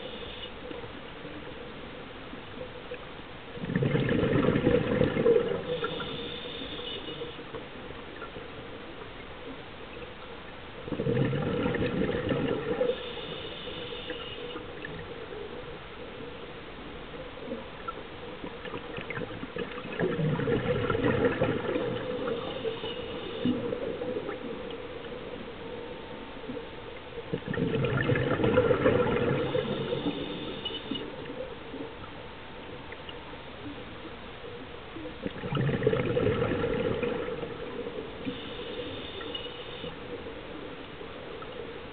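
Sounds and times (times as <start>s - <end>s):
bubbling exhaled air underwater: 3.5s - 7.0s, 10.8s - 15.2s, 17.5s - 25.2s, 27.2s - 31.8s, 35.0s - 40.0s
regulator inhale hiss: 5.6s - 7.4s, 12.8s - 14.6s, 22.0s - 23.9s, 29.4s - 31.1s, 38.2s - 40.1s.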